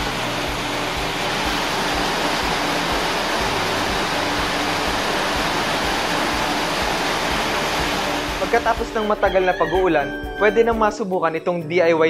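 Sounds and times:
heavy rain pouring: 0:00.0 - 0:09.3.

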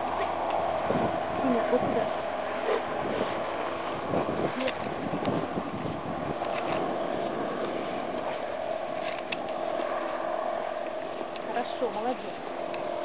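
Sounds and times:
tall grass rustling and swishing: 0:00.0 - 0:13.0
wind buffeting microphone: 0:00.0 - 0:13.0.

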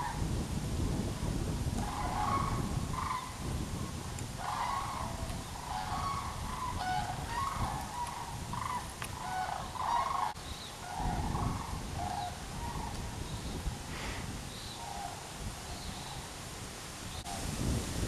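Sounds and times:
geese honking: 0:01.8 - 0:03.4, 0:04.4 - 0:13.1, 0:14.8 - 0:15.3.

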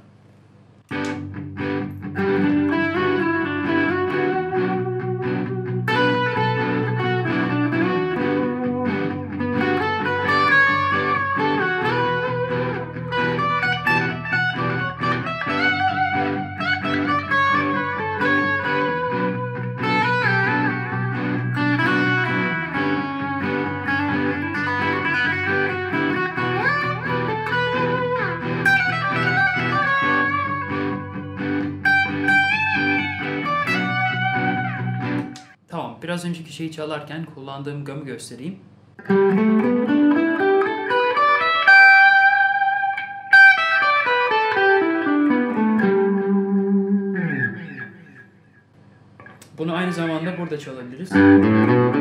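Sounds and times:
electric guitar lead lines: 0:00.8 - 0:35.7, 0:39.0 - 0:52.0.

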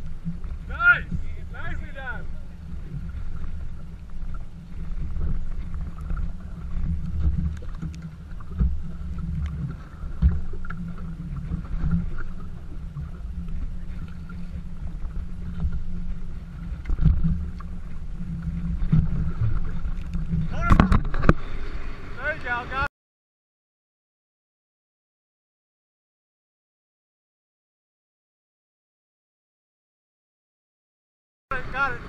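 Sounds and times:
wind rumbling on microphone: 0:00.0 - 0:22.2
lake water lapping and slapping: 0:00.0 - 0:22.9, 0:31.5 - 0:32.0.

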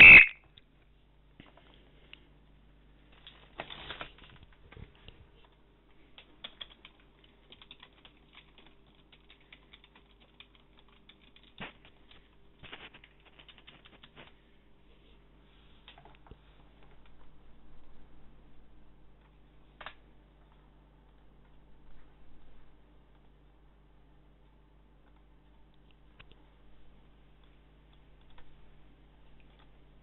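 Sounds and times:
faint steady hum: 0:00.0 - 0:30.0
keyboard typing clicks: 0:06.2 - 0:12.3, 0:13.0 - 0:14.2.

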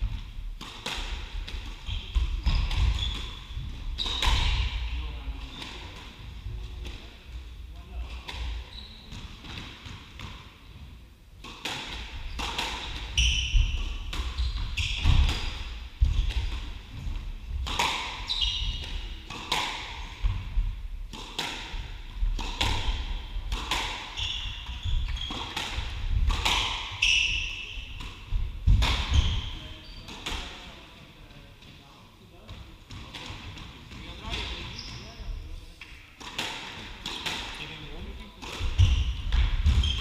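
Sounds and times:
squash ball cracks: 0:17.6 - 0:18.2, 0:25.4 - 0:27.0
shoes squeaking on wooden floor: 0:24.1 - 0:25.6.

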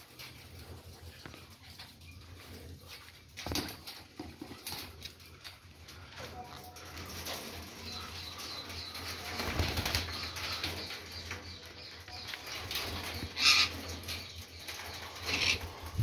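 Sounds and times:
parakeets fluttering wings: 0:06.8 - 0:11.3.

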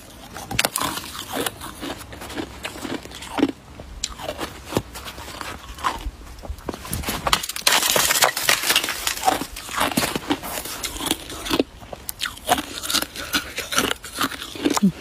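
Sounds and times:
ice crunching while chewed: 0:00.0 - 0:15.0
sharp ice cracks: 0:07.3 - 0:11.6.

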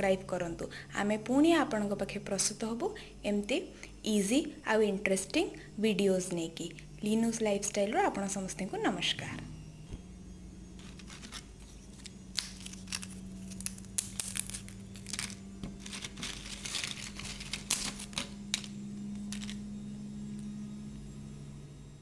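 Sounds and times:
steady low hum: 0:00.0 - 0:22.0
potato chips crackling: 0:10.8 - 0:19.6.

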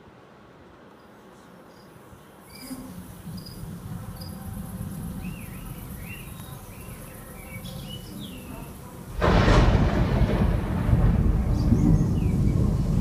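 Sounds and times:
crickets chirping: 0:01.0 - 0:13.0
low rumble: 0:09.1 - 0:13.0.

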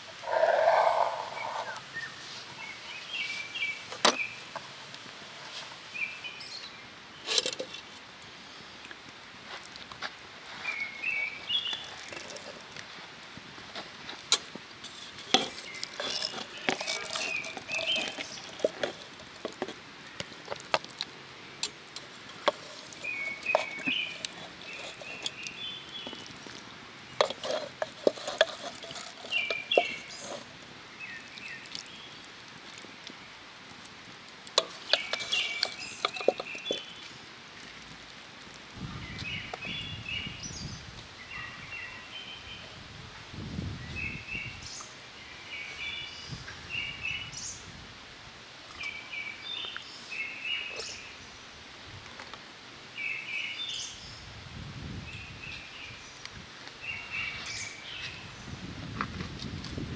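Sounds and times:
small bird singing: 0:00.2 - 0:04.5, 0:15.4 - 0:19.0, 0:23.0 - 0:32.3, 0:34.6 - 0:37.2, 0:48.8 - 0:51.4, 0:56.8 - 0:58.7.

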